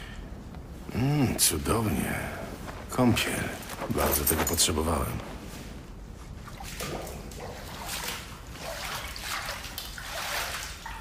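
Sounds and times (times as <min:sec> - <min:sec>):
bathwater splashing: 0:02.6 - 0:11.0.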